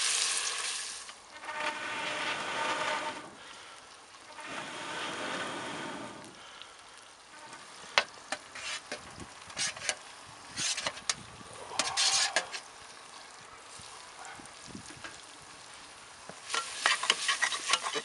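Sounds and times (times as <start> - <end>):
soft steady hiss: 0.0 - 18.0
metal spatula scraping metal tray: 1.3 - 3.4, 4.3 - 6.1, 7.4 - 9.0, 9.6 - 11.1, 11.8 - 12.6, 16.5 - 18.0.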